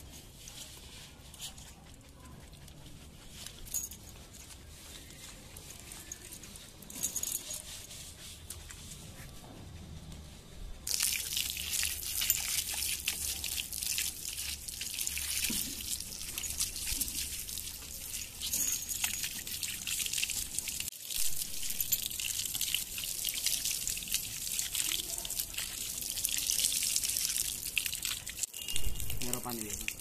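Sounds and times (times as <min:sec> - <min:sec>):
hose water spraying on dog: 0:10.8 - 0:30.0
water splattering on concrete: 0:10.9 - 0:18.1, 0:21.5 - 0:30.0.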